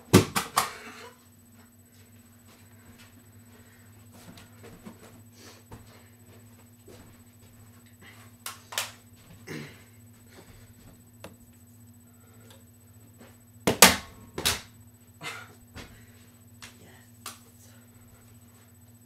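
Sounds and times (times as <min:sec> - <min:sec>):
low fan hum: 0:00.0 - 0:19.0.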